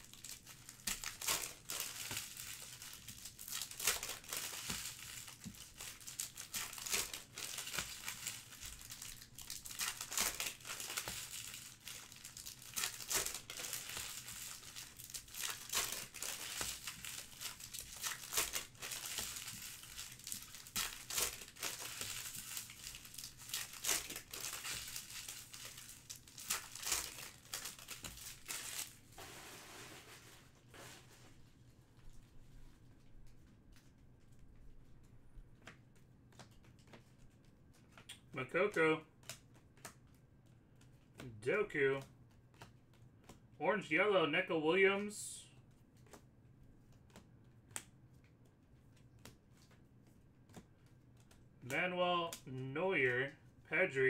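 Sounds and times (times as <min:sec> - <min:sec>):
wrappers ripping: 0:00.0 - 0:30.2
wrappers crinkling: 0:00.0 - 0:31.2.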